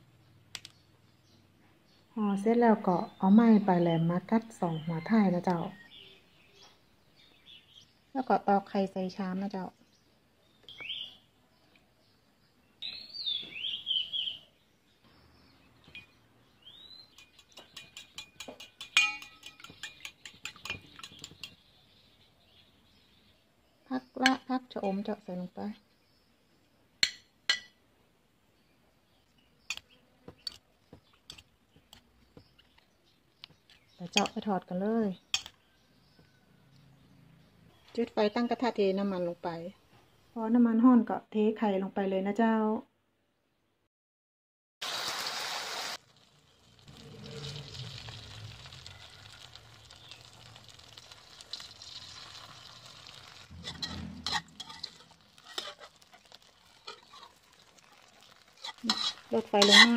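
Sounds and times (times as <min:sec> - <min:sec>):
spoon tapping enamel bowl: 0:17.1 - 0:21.6
dish clinking against bowl: 0:17.2 - 0:21.3
egg sizzling in oil: 0:44.8 - 0:59.9
metal ladle scraping wok: 0:51.5 - 0:59.9.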